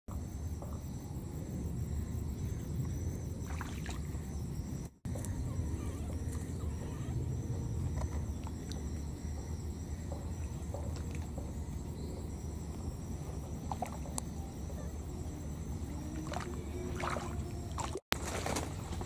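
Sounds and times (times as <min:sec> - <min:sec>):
steady low rumbling: 0:04.1 - 0:17.9.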